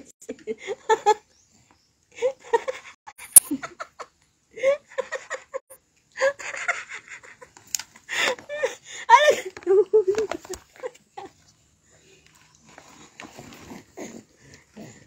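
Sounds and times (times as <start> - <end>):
laughter and giggling: 0.2 - 1.3, 2.1 - 11.4
sharp click: 3.2 - 3.5.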